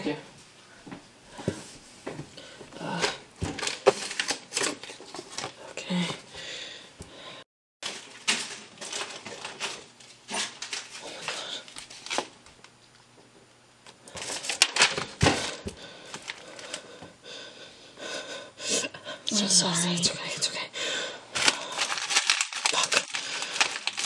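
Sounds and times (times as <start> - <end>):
paper rustling: 3.4 - 5.6, 7.8 - 12.4, 14.1 - 16.8, 21.4 - 24.0.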